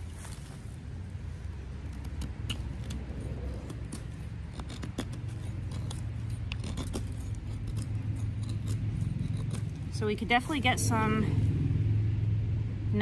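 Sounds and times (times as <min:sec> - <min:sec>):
low steady rumble: 0:00.0 - 0:13.0
knife scraping wood: 0:01.4 - 0:10.5.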